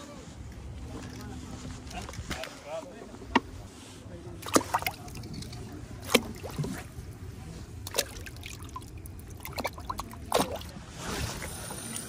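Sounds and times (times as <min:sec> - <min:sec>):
fish splashing in bucket: 0:04.4 - 0:07.0, 0:07.8 - 0:11.7
water dripping: 0:07.9 - 0:10.7.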